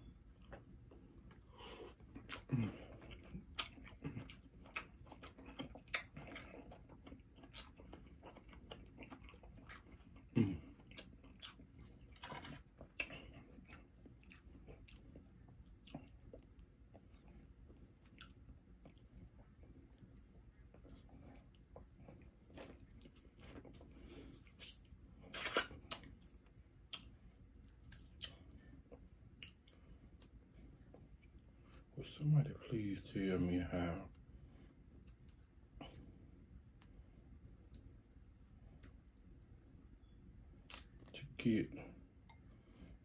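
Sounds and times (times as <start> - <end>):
person chewing food: 0.1 - 31.9, 42.0 - 43.0.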